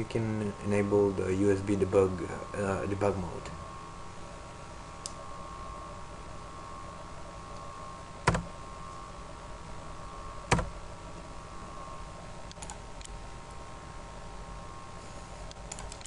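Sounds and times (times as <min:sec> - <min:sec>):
steady background hum: 0:00.0 - 0:16.0
computer mouse clicks: 0:12.5 - 0:13.2, 0:15.4 - 0:16.0.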